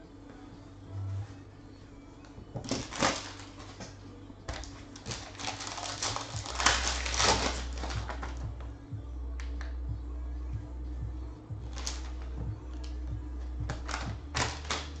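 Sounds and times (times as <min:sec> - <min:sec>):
foil wrapper crinkling and tearing: 0:02.6 - 0:03.9, 0:04.5 - 0:08.4, 0:11.7 - 0:12.3, 0:13.7 - 0:15.0.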